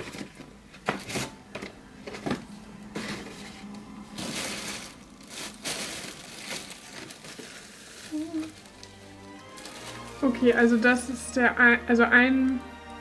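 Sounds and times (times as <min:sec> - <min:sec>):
packaging rustling and crinkling: 0:00.0 - 0:01.4, 0:02.0 - 0:11.0.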